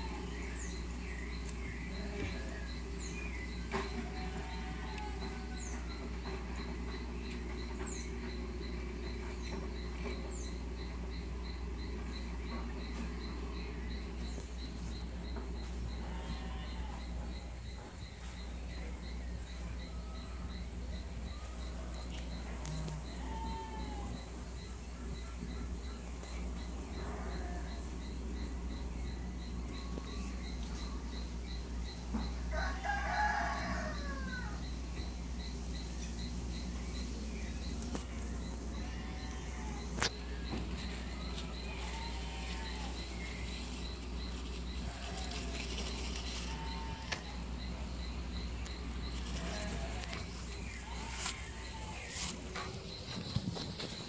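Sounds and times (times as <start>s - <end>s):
insect chirping: 0.0s - 54.0s
small birds chirping: 0.0s - 54.0s
steady low hum: 0.0s - 54.0s
rooster crowing: 4.2s - 6.1s, 32.4s - 34.8s.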